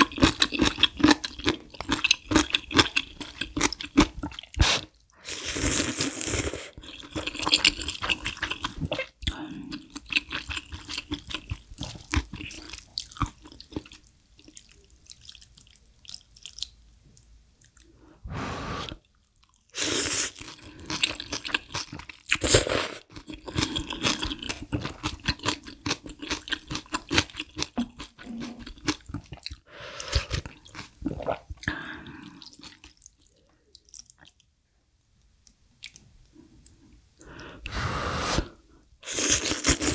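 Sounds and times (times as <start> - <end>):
wet chewing with crunchy bites: 0.0 - 5.0, 6.7 - 17.9, 18.9 - 34.5
slurping noodles and broth: 4.6 - 8.6, 18.3 - 19.1, 37.6 - 39.9.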